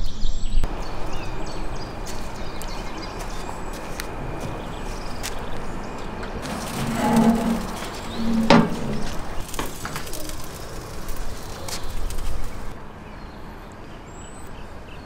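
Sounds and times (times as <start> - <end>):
metal lid clanking: 6.4 - 9.4
metal lid creaking: 6.4 - 9.4.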